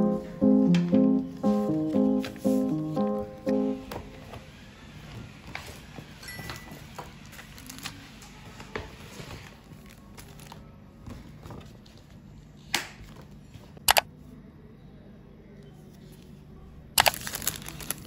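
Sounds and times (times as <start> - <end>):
quiet background music: 0.0 - 4.4
paper and plastic rustling: 6.8 - 12.2, 17.0 - 18.0
sharp plastic crinkles: 7.4 - 8.0, 17.0 - 18.0.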